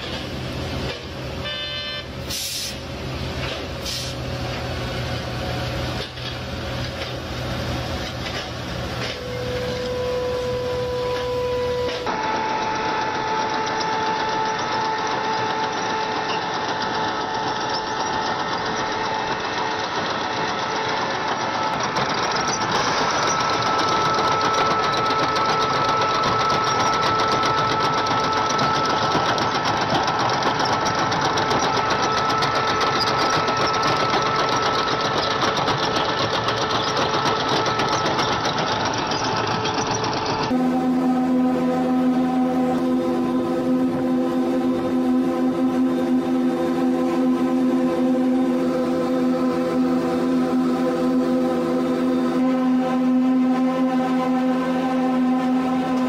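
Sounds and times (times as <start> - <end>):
high machine whine: 4.8 - 56.0
machinery clattering: 11.9 - 40.6.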